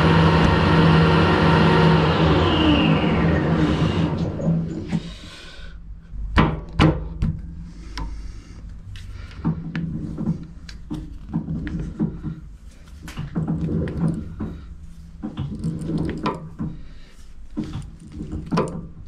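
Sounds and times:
metal lathe winding down: 0.0 - 5.0
low steady hum: 0.0 - 19.0.

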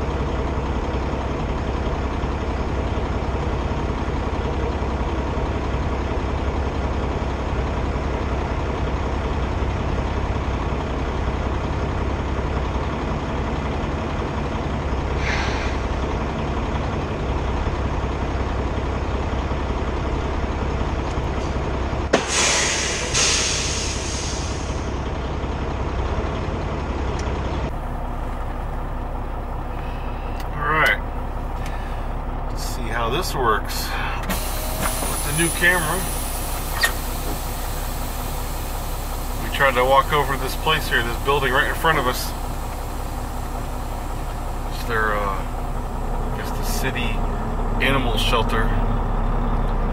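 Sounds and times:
diesel engine idling: 0.0 - 49.9
air hiss: 22.2 - 24.8.

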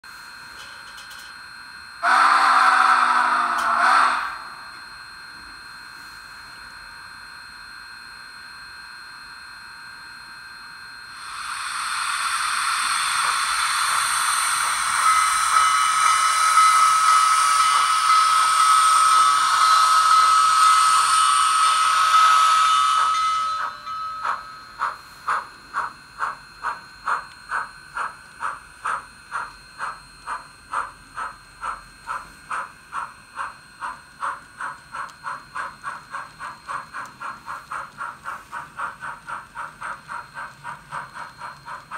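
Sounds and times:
steam locomotive exhaust chuffs: 2.0 - 4.8, 11.1 - 41.9
steam hiss with steady tone: 11.1 - 41.9.

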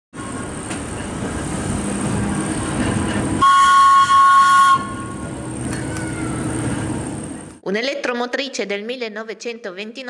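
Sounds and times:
railcar rolling over track: 0.2 - 7.6
high warning toots: 3.3 - 5.3.

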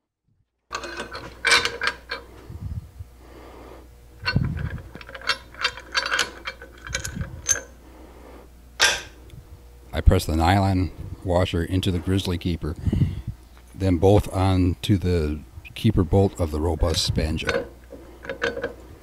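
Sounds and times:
faint steady hum: 0.4 - 19.0
metal parts clinking and scraping: 0.7 - 2.4, 4.2 - 7.8, 8.8 - 9.2, 16.3 - 19.0.

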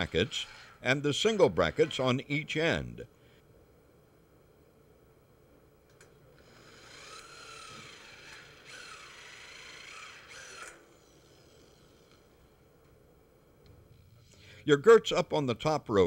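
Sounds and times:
electric drill driving screw: 0.0 - 2.0, 6.4 - 12.2.

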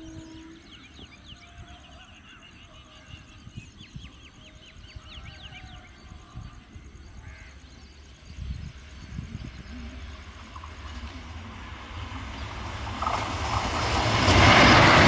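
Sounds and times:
low uneven rumble: 7.7 - 15.0.

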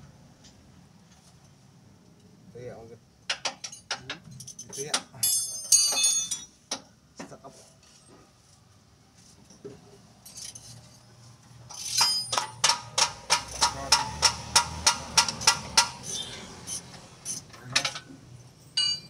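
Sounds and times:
hammer striking metal: 11.9 - 16.2, 18.8 - 19.0.

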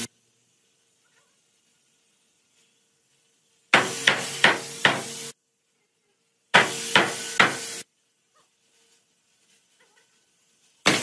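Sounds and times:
hammer striking wood: 3.8 - 5.1, 6.6 - 7.7.

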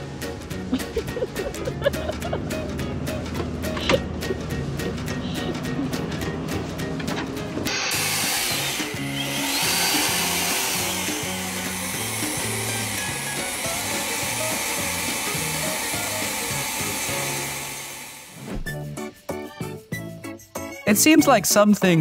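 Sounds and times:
background music with bass line: 0.0 - 17.6, 18.4 - 22.0
leaf blower running: 7.6 - 18.4.

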